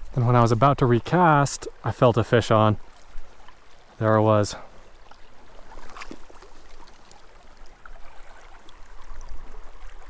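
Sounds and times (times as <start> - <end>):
creek water over gravel: 0.0 - 10.0
faint knocks and splashes: 5.0 - 10.0.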